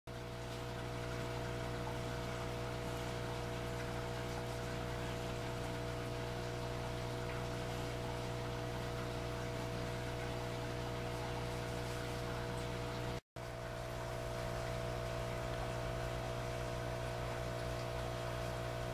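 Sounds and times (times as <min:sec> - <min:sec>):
machine hum with constant tones: 0:00.1 - 0:18.9.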